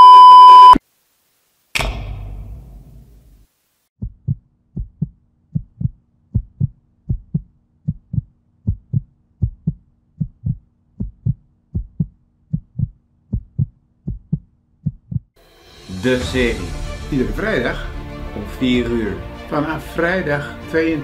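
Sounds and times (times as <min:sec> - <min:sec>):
heartbeat double thump: 0:04.0 - 0:15.3.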